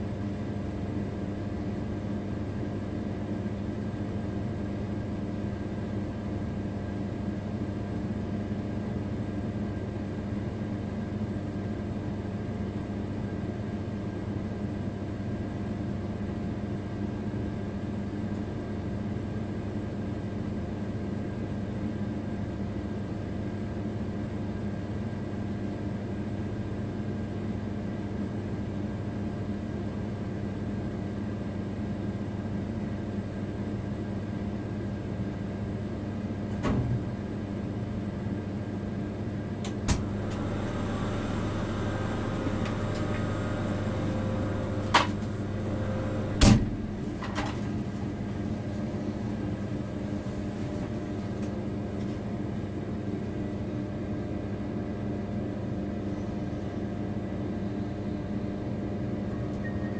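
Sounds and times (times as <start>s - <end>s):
locomotive cab hum: 39.7s - 47.4s.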